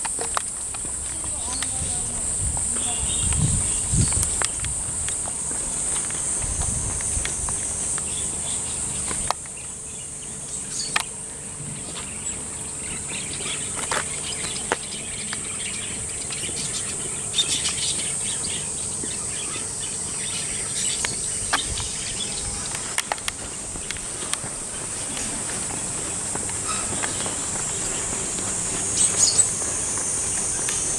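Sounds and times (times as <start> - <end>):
high-pitched insect drone: 0.0 - 30.9.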